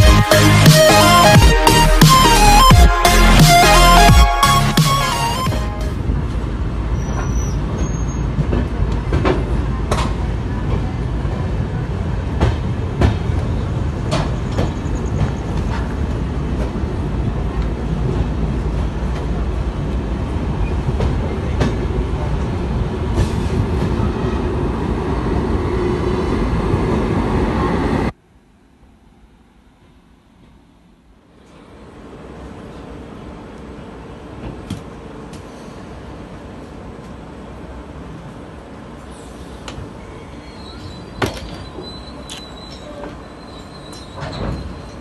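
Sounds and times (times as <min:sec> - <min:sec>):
train wheels rumbling on rails: 0:05.9 - 0:28.2, 0:31.4 - 0:45.0
rail joints clicking: 0:12.2 - 0:23.9.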